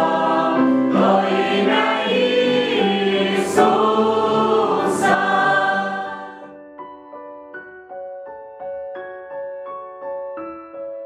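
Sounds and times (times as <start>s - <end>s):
congregation singing a hymn: 0.0s - 6.6s.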